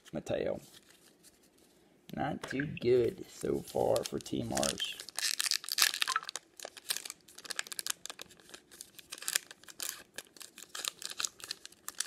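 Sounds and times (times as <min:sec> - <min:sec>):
wrapper crinkling and tearing: 0:03.4 - 0:12.0.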